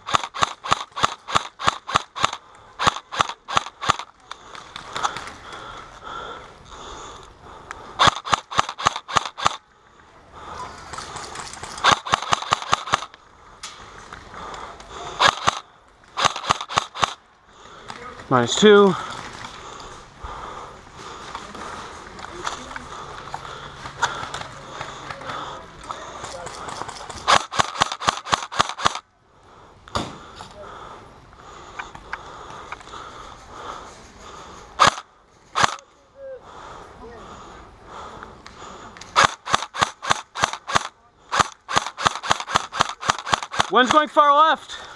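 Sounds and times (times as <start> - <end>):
airsoft rifle rapid shots: 0.0 - 4.1, 8.0 - 9.6, 11.8 - 13.1, 15.0 - 15.6, 16.2 - 17.2, 26.2 - 29.0, 34.8 - 35.8, 39.1 - 44.2
sharp crack: 0.0 - 5.8, 7.6 - 9.6, 10.4 - 19.8, 21.3 - 29.1, 34.8 - 35.8, 38.4 - 44.1.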